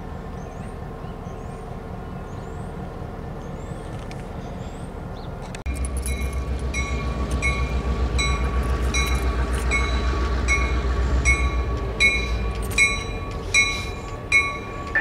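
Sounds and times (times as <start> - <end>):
diesel train rumble: 0.0 - 15.0
railroad bell ringing: 5.7 - 15.0.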